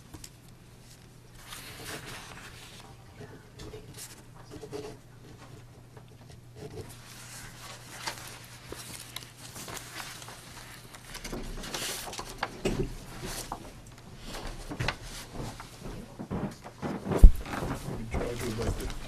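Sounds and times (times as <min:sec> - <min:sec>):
low electrical hum: 0:00.0 - 0:19.0
papers clicking and rustling: 0:06.8 - 0:19.0
shuffling movement: 0:06.8 - 0:19.0.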